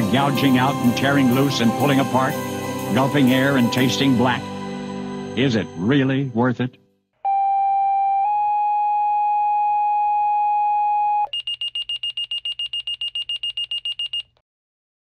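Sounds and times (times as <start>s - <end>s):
two-tone pager tone: 7.3s - 14.4s
rapid high-pitched beeping: 11.3s - 14.2s.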